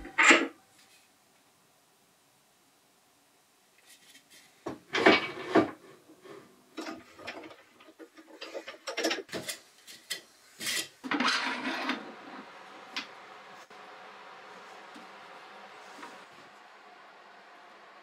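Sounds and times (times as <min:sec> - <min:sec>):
wood and metal clunks and scrapes: 0:04.6 - 0:09.6.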